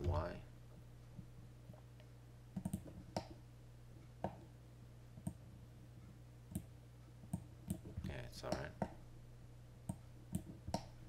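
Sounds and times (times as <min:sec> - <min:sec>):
faint low hum: 0:00.0 - 0:11.0
mouse and keyboard clicks: 0:02.6 - 0:03.4.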